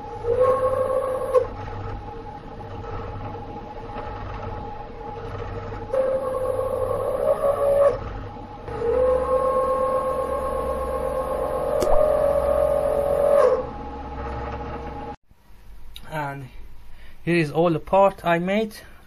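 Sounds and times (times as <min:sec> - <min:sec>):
milling cutter whining: 0:00.0 - 0:15.2
milling machine hum: 0:00.0 - 0:15.2.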